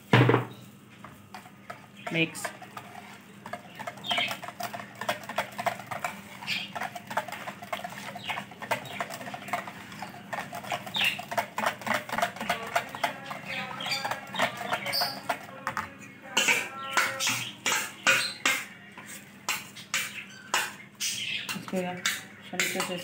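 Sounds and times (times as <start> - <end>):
whisk beating yogurt in a bowl: 1.0 - 20.7, 21.5 - 23.0.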